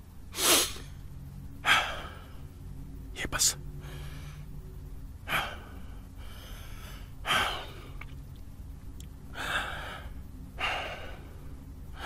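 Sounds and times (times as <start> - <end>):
low steady hum: 0.0 - 12.0
person breathing: 3.8 - 4.6, 5.2 - 8.1, 9.3 - 12.0.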